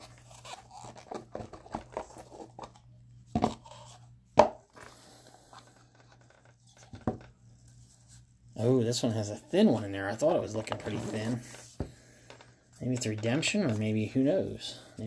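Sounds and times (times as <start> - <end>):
box lid scraping: 10.7 - 11.6.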